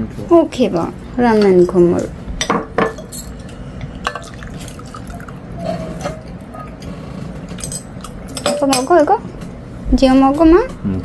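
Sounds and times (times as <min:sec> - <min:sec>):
dishes clinking: 0:01.3 - 0:09.2
liquid pouring and trickling: 0:03.8 - 0:06.7.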